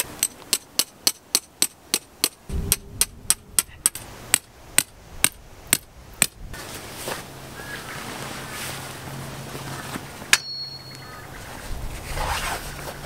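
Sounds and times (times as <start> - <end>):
steady low hum: 2.4 - 7.7
sharp strikes: 2.5 - 6.4
rushing noise: 2.5 - 7.1.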